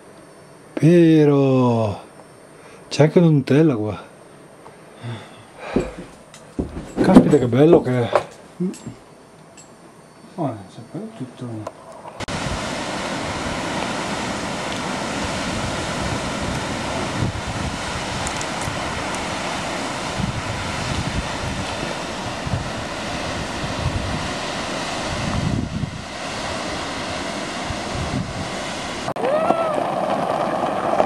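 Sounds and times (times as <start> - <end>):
wind buffeting microphone: 12.1 - 31.0
waterfall roaring: 12.2 - 31.0.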